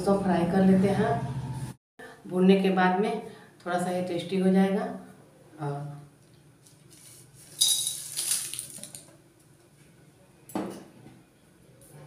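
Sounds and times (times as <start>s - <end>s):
spices clattering into metal pan: 7.6s - 8.6s.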